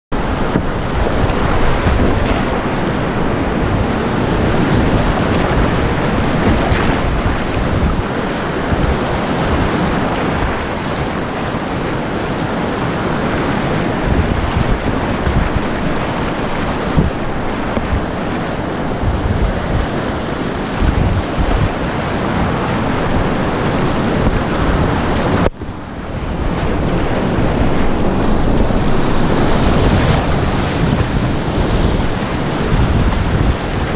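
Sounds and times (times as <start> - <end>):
whitewater rapids rushing: 0.1 - 33.9
paddle strokes splashing: 0.2 - 25.5.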